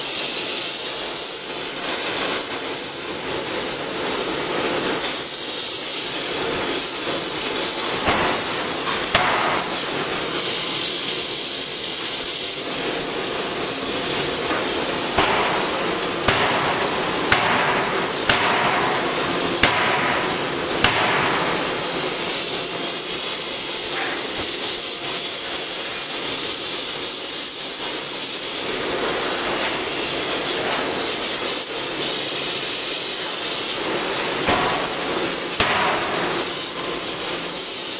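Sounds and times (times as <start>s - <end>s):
steady loud hiss: 0.0s - 37.9s
forging hammer blows: 6.5s - 10.4s, 14.5s - 24.5s, 33.8s - 37.6s.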